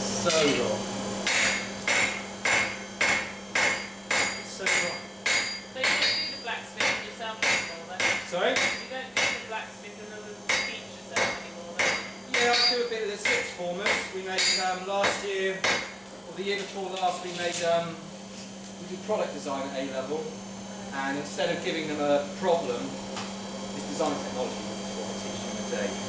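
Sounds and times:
hammer striking steel on anvil: 1.2s - 9.5s, 10.5s - 16.0s.

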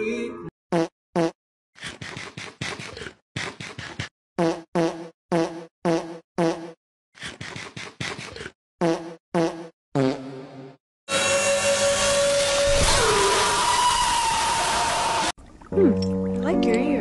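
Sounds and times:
fart-like comedy sound effects: 4.4s - 6.8s, 8.8s - 10.8s.

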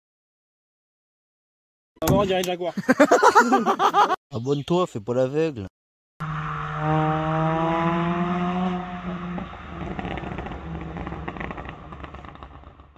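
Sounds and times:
car engine revving: 6.2s - 12.9s
engine crackles: 6.2s - 12.9s.

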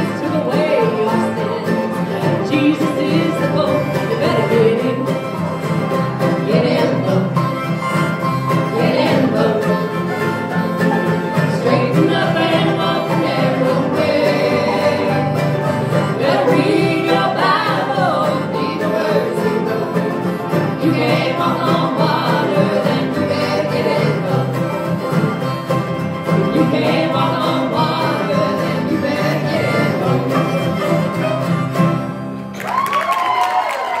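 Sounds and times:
voices singing: 0.0s - 31.8s
bluegrass band playing: 0.0s - 32.8s.

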